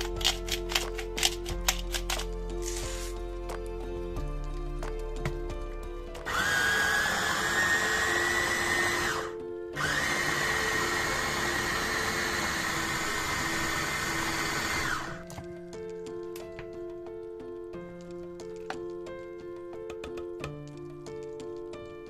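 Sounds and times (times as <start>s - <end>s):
food chopper motor whine: 6.2s - 15.2s.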